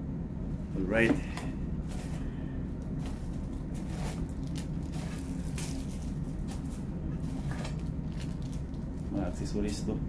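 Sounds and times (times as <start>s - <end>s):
low background hum: 0.0s - 10.0s
plastic packaging rustling: 3.0s - 9.2s.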